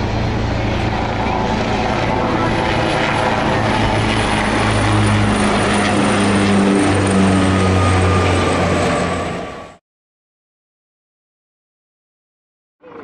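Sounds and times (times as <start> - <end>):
helicopter rotor drone: 0.0 - 9.8
propeller plane drone: 0.0 - 9.8, 12.8 - 13.0.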